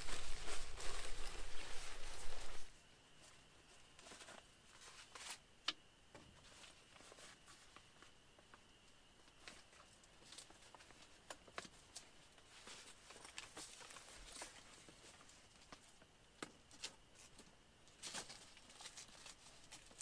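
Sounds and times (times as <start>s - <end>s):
camp gear clicking and rustling: 0.0s - 2.7s, 9.4s - 20.0s.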